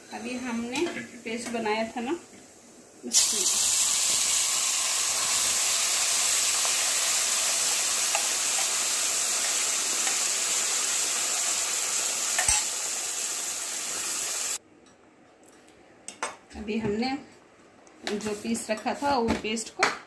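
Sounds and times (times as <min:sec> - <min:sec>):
paste sizzling in hot oil: 0:03.0 - 0:14.6.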